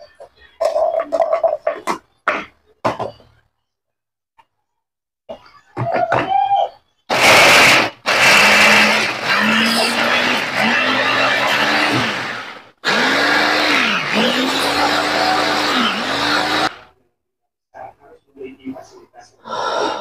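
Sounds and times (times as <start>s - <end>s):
food chopper whirring: 7.1s - 16.9s.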